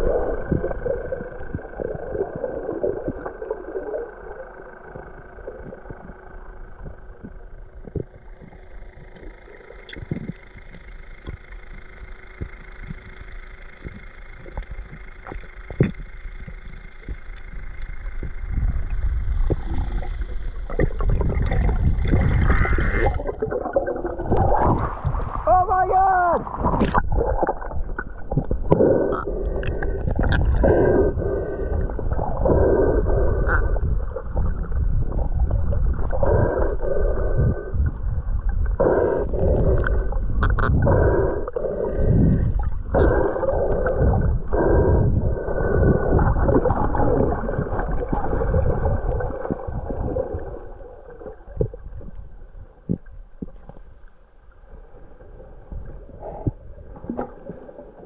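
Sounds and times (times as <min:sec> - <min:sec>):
low underwater rumble: 0:00.0 - 0:58.0
whale moans and groans: 0:26.1 - 0:52.0.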